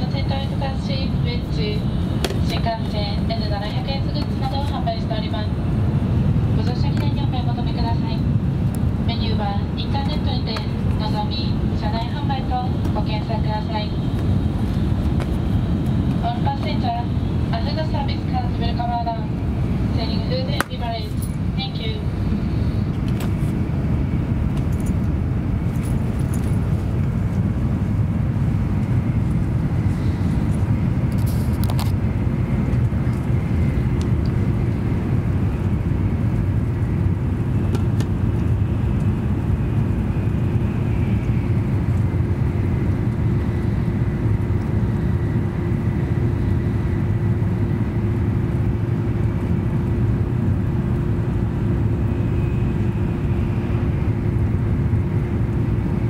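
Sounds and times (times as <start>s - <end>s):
mid-pitched hum tone: 0.0s - 56.0s
train interior rumble and hum: 0.0s - 56.0s
faint high whine: 51.0s - 55.5s.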